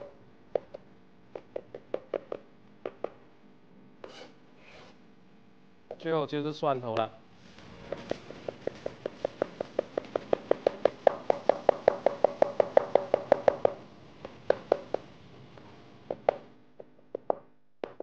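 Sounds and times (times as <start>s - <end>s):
cleaver chopping on cutting board: 7.9s - 13.8s.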